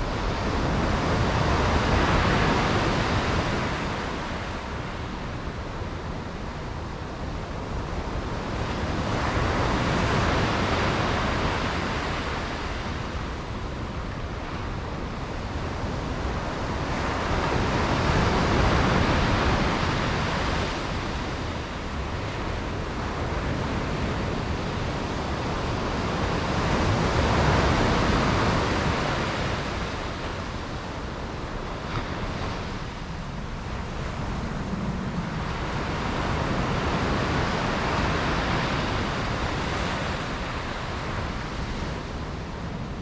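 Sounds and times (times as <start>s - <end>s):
sea waves breaking: 14.4s - 43.0s.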